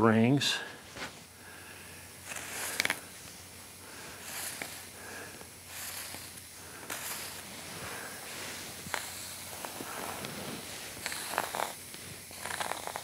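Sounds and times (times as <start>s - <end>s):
marker pen drawing on wood: 2.3s - 3.0s, 4.2s - 4.8s, 6.9s - 8.1s, 8.9s - 11.8s, 12.4s - 13.0s.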